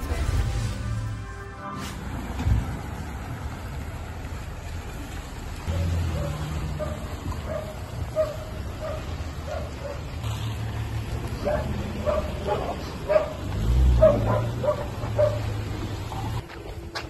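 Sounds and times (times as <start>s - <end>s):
dog barking: 5.7s - 10.1s, 11.4s - 15.6s.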